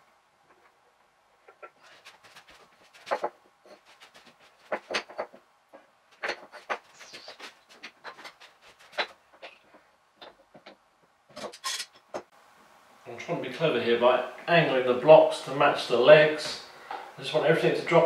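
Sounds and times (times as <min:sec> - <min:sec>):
wooden blocks knocking on workbench: 0:04.7 - 0:06.9.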